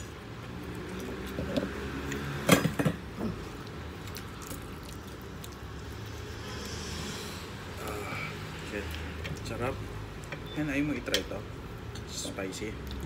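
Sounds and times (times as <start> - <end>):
man chewing food: 0.0 - 2.4, 3.0 - 7.5
food tearing: 3.4 - 6.8.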